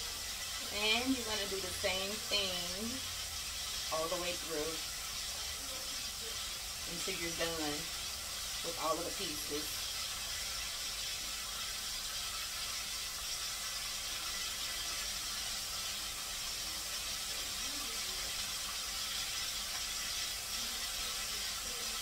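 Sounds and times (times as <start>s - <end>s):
fish frying in hot oil: 0.0s - 22.0s.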